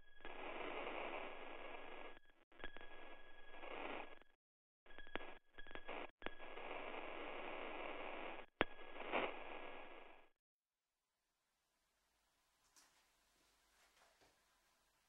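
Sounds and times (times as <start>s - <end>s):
radio static hiss: 5.7s - 10.3s.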